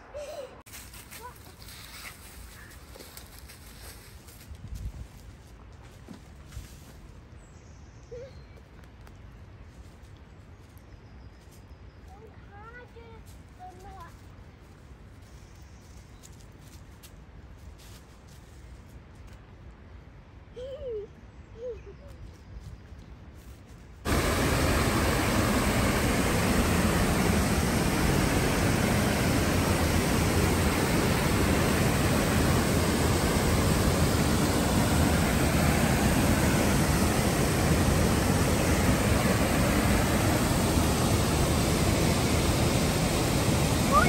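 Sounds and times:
fast-flowing river water rushing: 24.1s - 44.0s.

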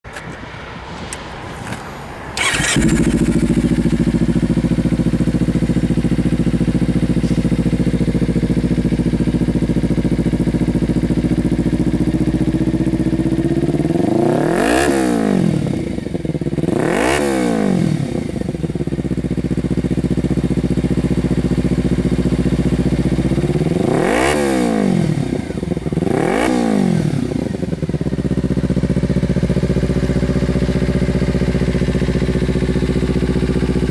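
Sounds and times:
motorcycle throttle blips: 2.4s - 12.2s
motorcycle engine idling: 2.4s - 14.5s, 15.2s - 33.9s.

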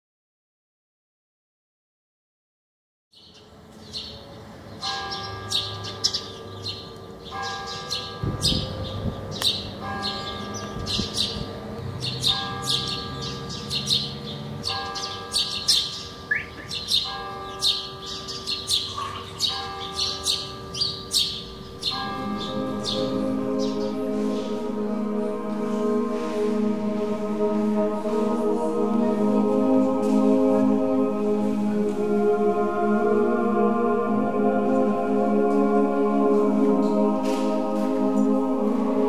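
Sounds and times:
small birds chirping: 3.2s - 24.6s
music: 21.7s - 39.0s.

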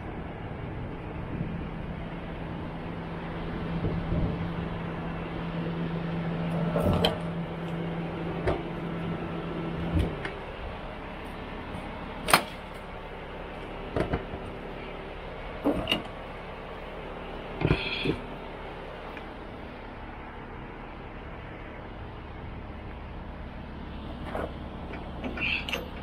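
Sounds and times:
steady low hum: 0.0s - 26.0s
knocks and clunks: 8.4s - 8.7s, 13.9s - 14.5s, 15.6s - 16.2s, 17.6s - 18.2s.

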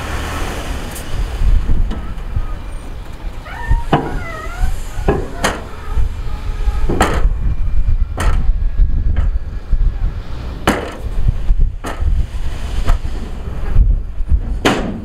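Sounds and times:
heavy diesel machinery rumbling: 0.0s - 15.0s
wavering squeal: 2.0s - 7.6s.

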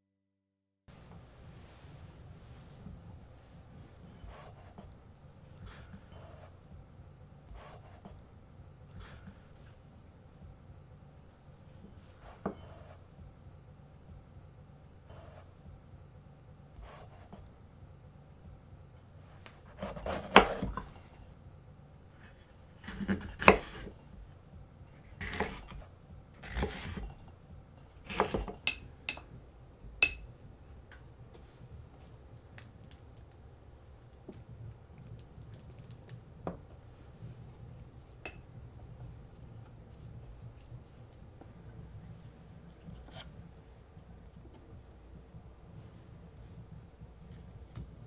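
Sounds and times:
knife slicing pepper on board: 19.7s - 20.9s, 22.8s - 23.9s, 25.1s - 25.8s, 26.4s - 27.1s, 28.1s - 28.6s.

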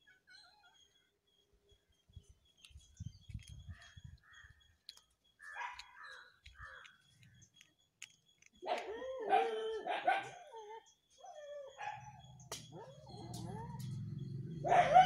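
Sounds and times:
dog barking: 5.5s - 5.9s, 8.7s - 10.5s, 14.6s - 15.0s.

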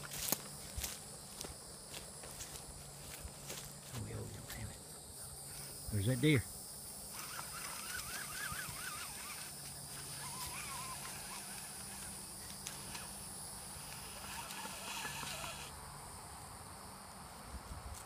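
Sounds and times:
insects chirring: 0.0s - 18.0s
short wavering calls: 7.0s - 15.7s.

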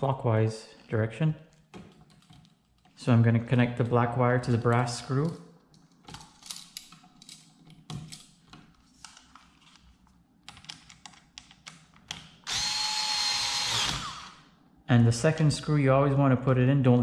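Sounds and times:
wire clicking and scraping: 1.5s - 3.0s
cordless screwdriver running: 12.5s - 14.4s.

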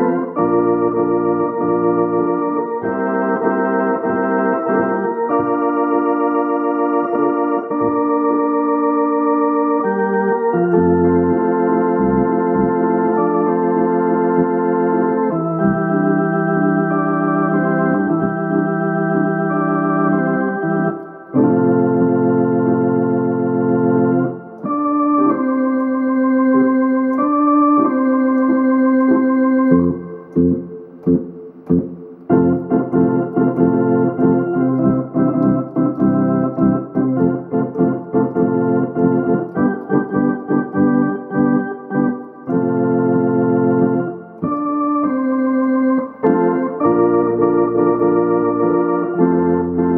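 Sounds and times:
organ playing chords: 0.0s - 49.9s
bass line: 27.1s - 45.2s.

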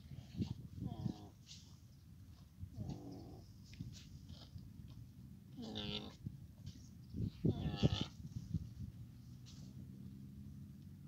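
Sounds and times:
camel calf calling: 5.5s - 6.2s, 7.3s - 8.2s.

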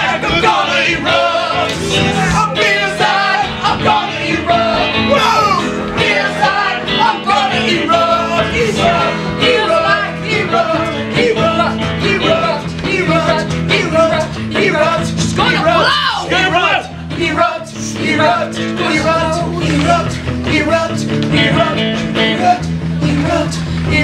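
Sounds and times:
keyboard accompaniment: 0.0s - 15.8s
several voices singing: 0.0s - 24.0s.

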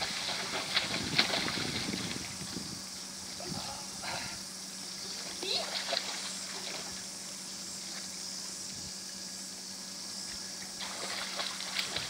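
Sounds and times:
faint water splashes: 0.0s - 2.7s, 5.0s - 7.2s, 10.6s - 12.0s
faint low hum: 0.0s - 12.0s.

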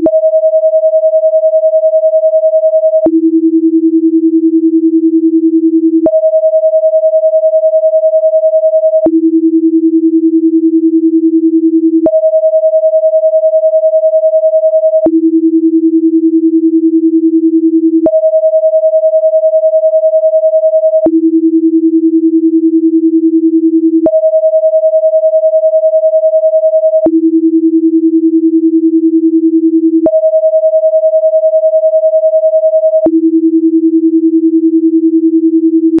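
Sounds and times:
steady synthetic sine tones: 30.0s - 33.3s.

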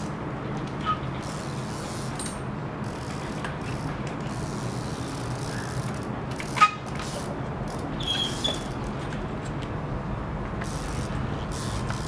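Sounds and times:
outdoor background noise: 0.0s - 12.0s
short high squeak: 8.0s - 8.7s.

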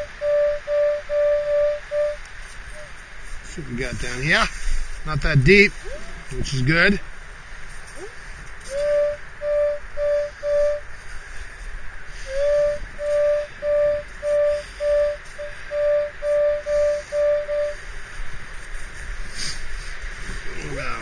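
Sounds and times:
metal detector beeping: 13.0s - 17.8s.

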